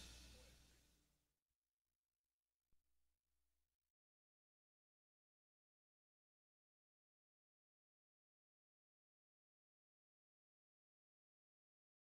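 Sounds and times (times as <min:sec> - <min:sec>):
music: 0:00.0 - 0:01.0.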